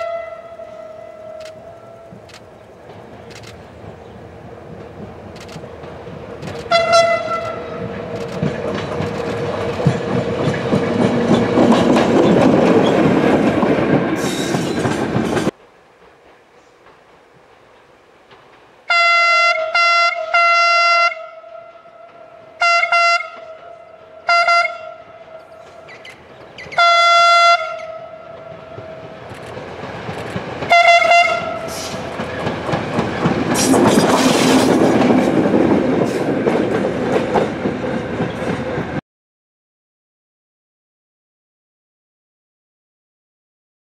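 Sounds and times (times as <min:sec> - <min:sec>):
train horn blasts: 0:00.0 - 0:02.2, 0:06.6 - 0:08.0, 0:18.9 - 0:25.9, 0:26.8 - 0:29.2, 0:30.7 - 0:32.0
diesel locomotive engine rumble: 0:00.0 - 0:18.9, 0:21.3 - 0:39.0.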